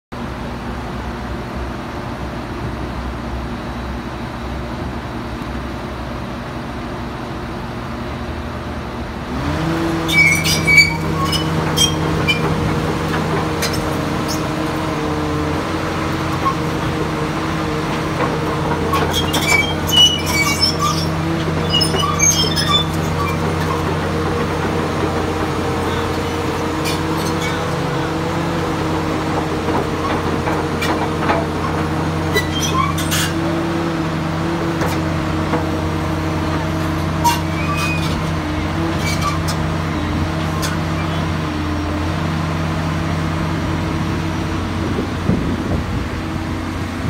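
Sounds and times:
heavy diesel engine running: 0.1s - 47.0s
high metallic squeaks and clinks: 10.0s - 14.6s, 18.8s - 24.2s, 25.5s - 28.0s, 31.6s - 33.4s, 37.2s - 38.3s.

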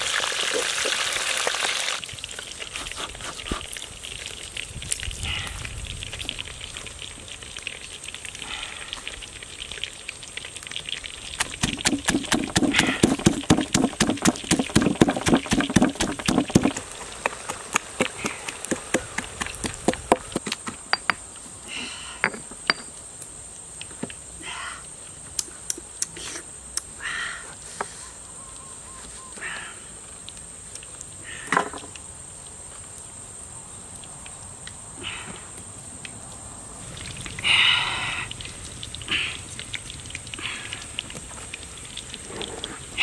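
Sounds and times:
pestle pounding in stone mortar: 11.4s - 21.2s.

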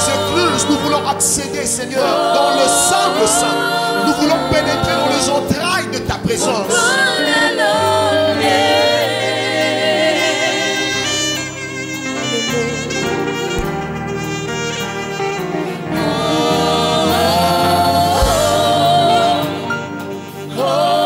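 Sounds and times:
man singing with vibrato: 0.0s - 7.4s
female backing singers: 0.0s - 11.5s, 15.7s - 21.0s
band accompaniment: 0.0s - 21.0s.

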